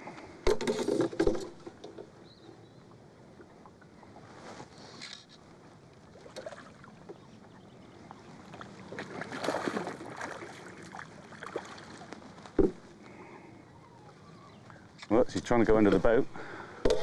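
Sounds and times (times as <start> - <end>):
fish splashing at water surface: 8.9 - 12.1.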